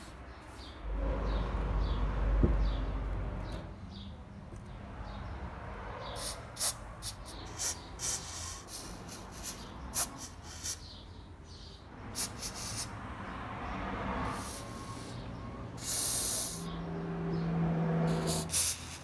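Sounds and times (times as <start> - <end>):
aerosol spray hissing: 12.2 - 12.9, 18.1 - 19.0.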